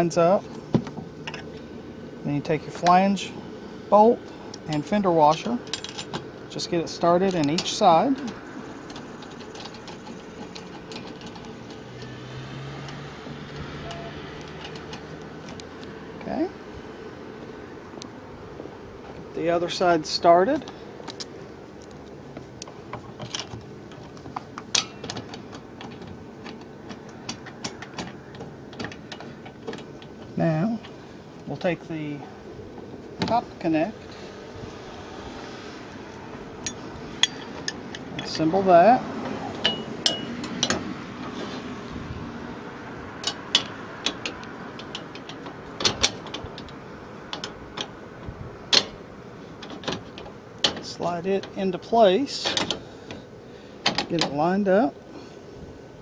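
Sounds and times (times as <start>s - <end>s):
mounting hardware clicks and taps: 13.6s - 15.9s, 43.2s - 48.0s, 53.8s - 54.4s.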